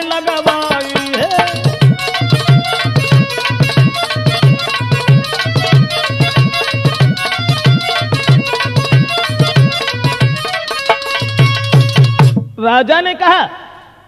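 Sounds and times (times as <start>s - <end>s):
held melodic line: 0.0s - 12.4s
hand drum beat: 0.0s - 12.5s.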